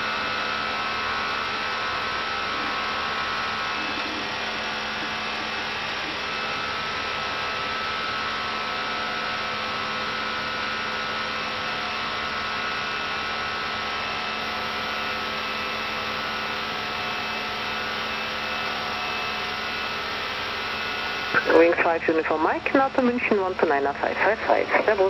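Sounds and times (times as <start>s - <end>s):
aircraft cockpit hum: 21.0s - 25.0s.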